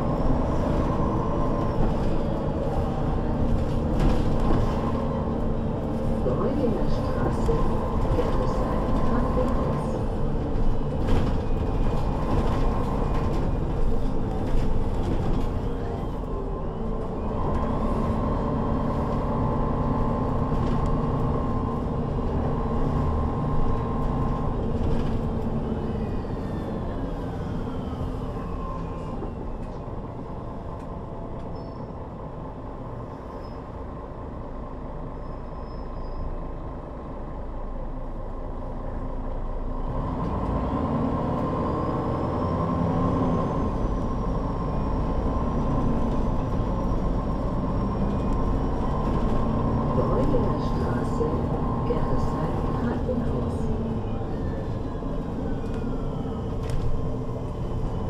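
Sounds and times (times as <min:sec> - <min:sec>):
bus diesel engine running: 0:00.0 - 0:58.0.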